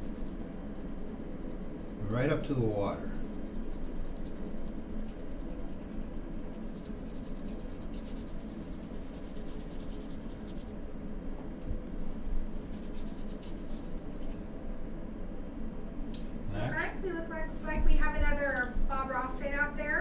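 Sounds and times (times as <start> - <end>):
paintbrush scrubbing on canvas: 0.0 - 10.8, 12.5 - 14.5.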